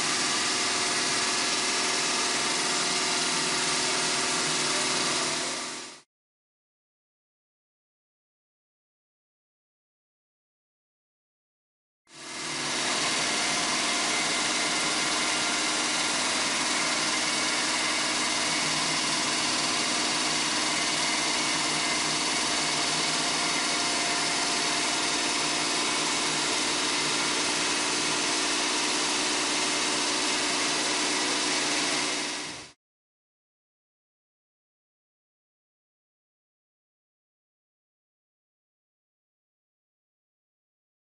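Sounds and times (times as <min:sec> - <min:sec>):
saw cutting stone: 0:00.0 - 0:06.0, 0:12.2 - 0:32.8.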